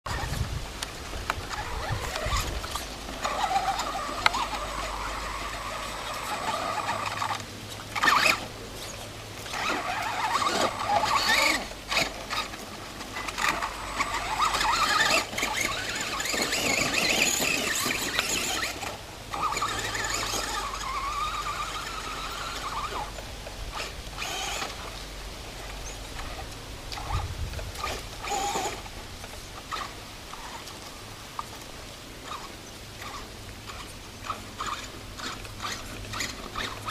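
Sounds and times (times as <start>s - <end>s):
electric motor whining: 1.2s - 25.0s, 27.0s - 28.9s, 32.3s - 36.9s.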